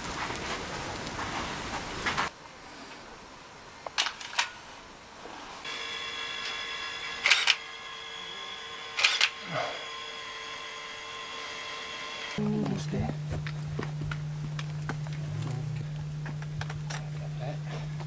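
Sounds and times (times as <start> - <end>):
steady held tone: 5.7 - 18.0
camera shutter clicks: 7.2 - 7.6, 9.0 - 9.4.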